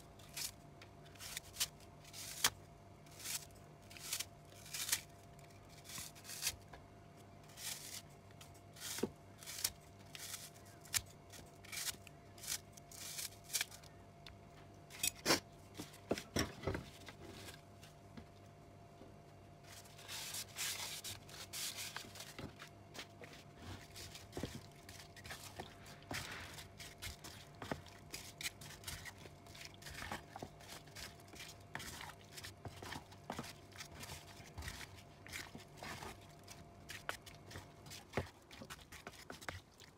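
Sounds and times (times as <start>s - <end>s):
hand mixing food in container: 19.7s - 39.9s.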